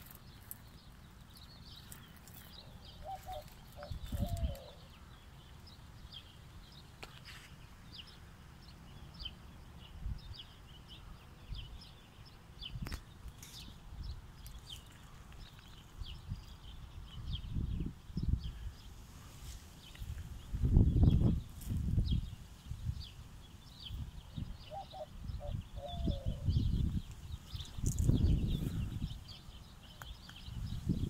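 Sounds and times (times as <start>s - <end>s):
small birds chirping: 0.0s - 31.0s
low microphone rumbles: 23.8s - 29.4s.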